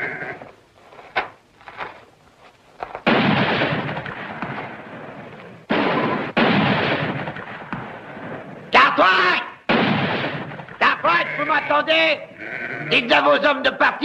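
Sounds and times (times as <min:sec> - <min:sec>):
echoing gunshots: 0:03.0 - 0:08.7, 0:09.6 - 0:11.0.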